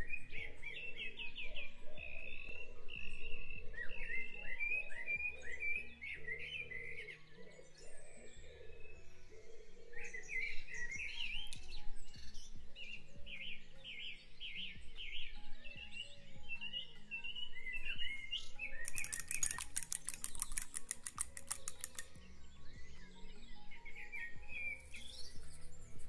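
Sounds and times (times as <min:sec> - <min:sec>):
birds chirping: 0:00.0 - 0:26.0
soft background music: 0:00.0 - 0:26.0
fork beating eggs in a bowl: 0:18.9 - 0:22.0.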